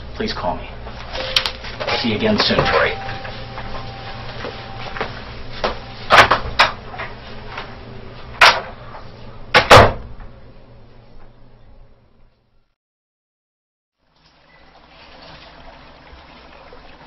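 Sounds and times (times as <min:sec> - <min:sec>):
faint room hum: 0:00.0 - 0:12.7.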